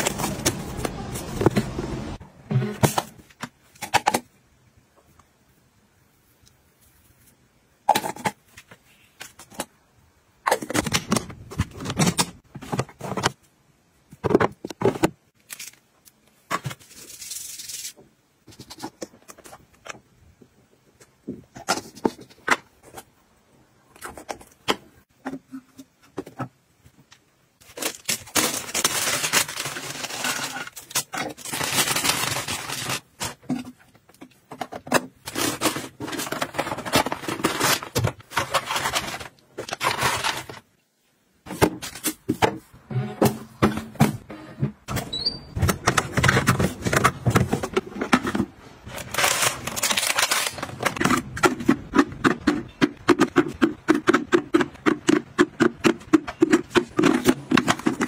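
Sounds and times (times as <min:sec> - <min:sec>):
packaging rustling: 0:27.6 - 0:33.5, 0:35.0 - 0:40.7, 0:45.6 - 0:52.0.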